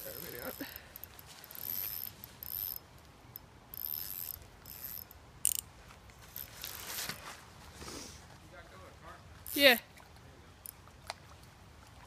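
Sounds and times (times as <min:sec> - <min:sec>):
fishing reel clicking: 0:00.0 - 0:05.7, 0:09.5 - 0:09.8.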